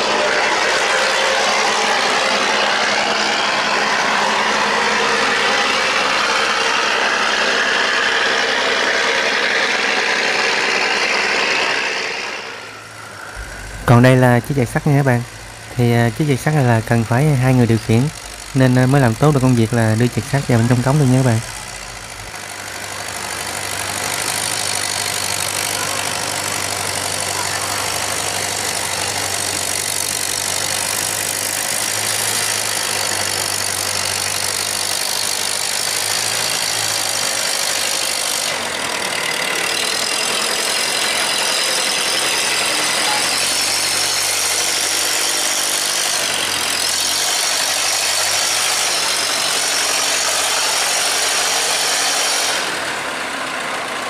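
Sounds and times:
outboard engine running: 0.0s - 41.3s.

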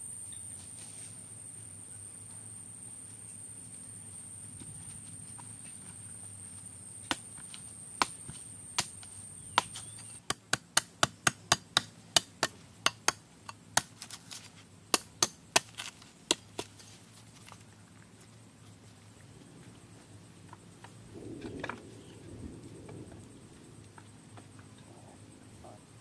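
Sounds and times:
machete chopping coconuts: 7.1s - 16.9s.

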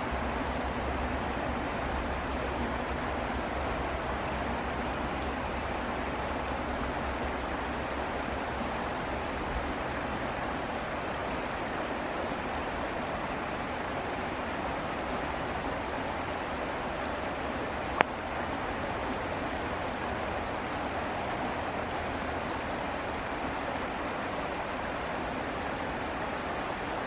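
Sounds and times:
stream rushing over stones: 0.0s - 27.0s.

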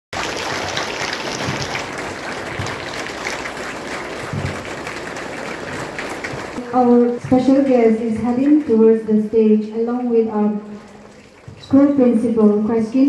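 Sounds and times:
crowd applauding: 0.1s - 6.6s, 7.5s - 8.8s.

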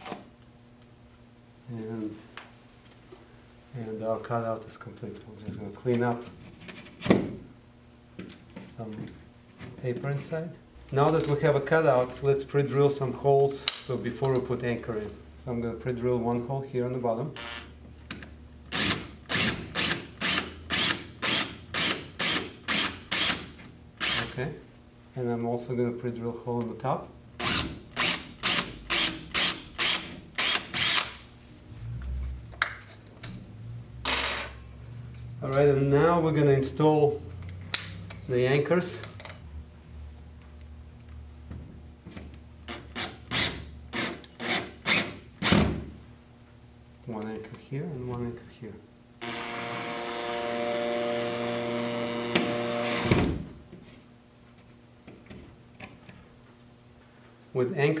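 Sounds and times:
cordless drill boring into drywall: 18.7s - 23.4s, 24.0s - 24.4s, 27.4s - 31.2s, 43.0s - 45.6s, 49.2s - 53.3s
cordless drill running: 27.4s - 31.1s, 49.2s - 53.2s.

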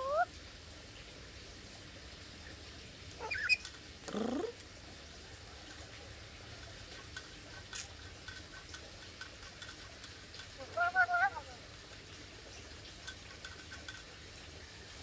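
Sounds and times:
parrot calls: 0.0s - 0.3s, 3.2s - 4.6s, 10.6s - 11.6s.

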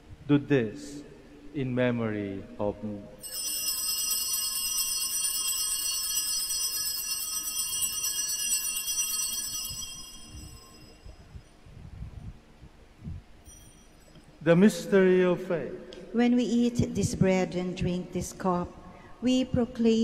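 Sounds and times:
small bells jingling: 3.2s - 11.6s, 13.4s - 14.4s.

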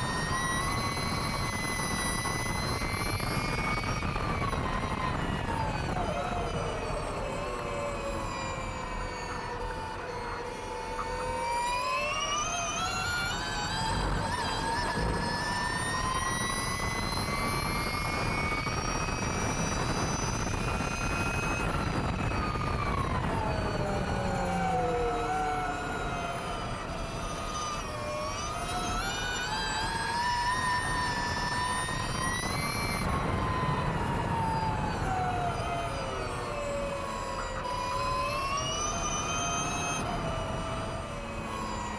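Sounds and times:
electric motor whine: 0.0s - 41.9s
wind rush: 14.9s - 24.9s.

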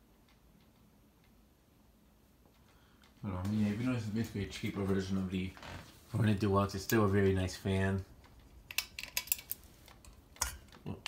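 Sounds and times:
ceiling fan ticking: 0.0s - 5.5s, 6.1s - 8.9s.

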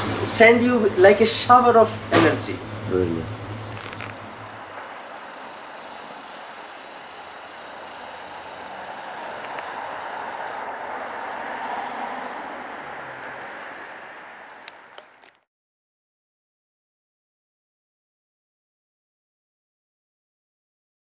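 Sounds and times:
hum of street traffic: 0.0s - 15.5s
vehicle passing: 2.9s - 15.4s.

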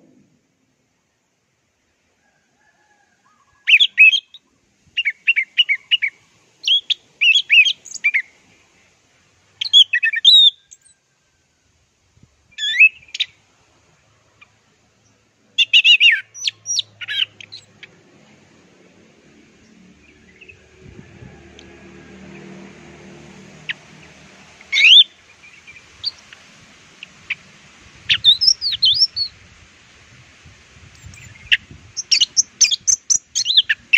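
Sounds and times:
thrush singing whistled notes: 3.6s - 8.3s, 9.6s - 11.0s, 12.5s - 13.4s, 15.6s - 17.9s, 19.6s - 27.4s, 28.0s - 29.4s, 31.0s - 33.9s.

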